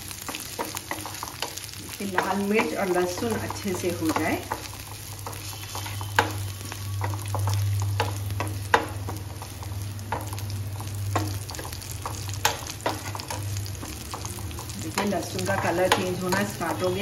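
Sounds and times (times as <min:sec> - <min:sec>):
spices sizzling in hot oil: 0:00.0 - 0:17.0
steel spoon scraping a pan: 0:02.2 - 0:10.3.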